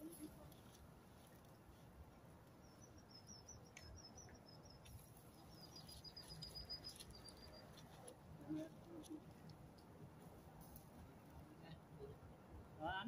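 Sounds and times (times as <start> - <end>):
faint high-pitched chirping trill: 2.6 - 7.8.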